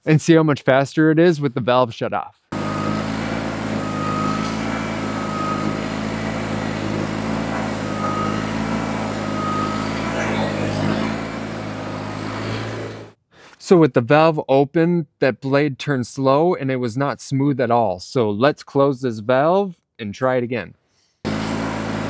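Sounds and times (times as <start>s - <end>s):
garden tractor engine running: 2.5s - 13.2s, 21.3s - 22.0s
faint hydraulic whine: 2.6s - 13.2s.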